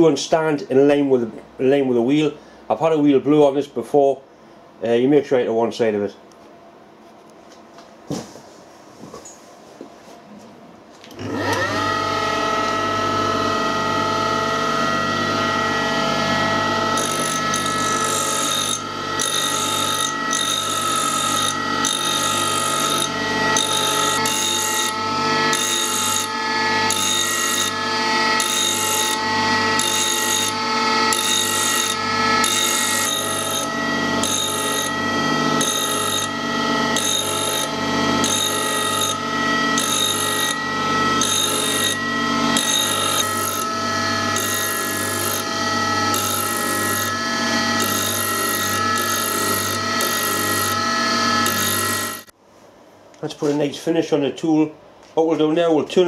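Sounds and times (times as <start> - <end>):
grinder motor humming: 11.1 - 52.3
steel tool grinding on wheel: 15.7 - 52.3.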